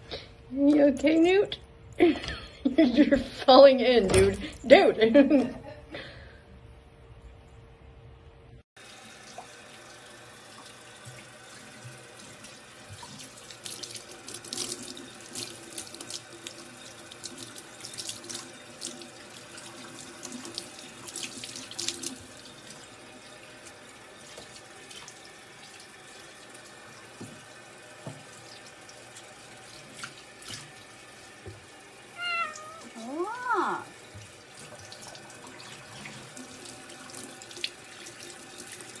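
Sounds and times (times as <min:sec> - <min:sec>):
tap running into steel sink: 0:27.2 - 0:28.3
cat meowing: 0:32.1 - 0:33.8.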